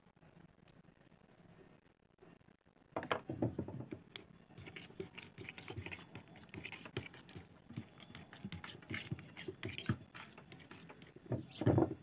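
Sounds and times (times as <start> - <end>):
spoon scraping a steel bowl: 4.6 - 11.2.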